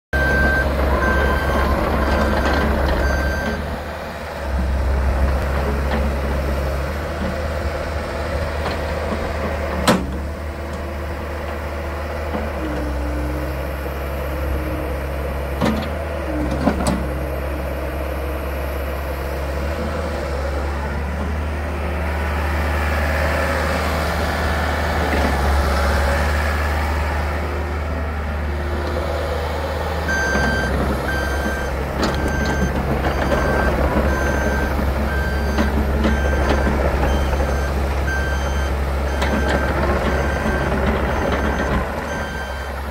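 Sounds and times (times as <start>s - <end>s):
diesel excavator engine running: 0.1s - 42.9s
travel alarm beeping: 0.2s - 3.7s, 30.1s - 42.7s.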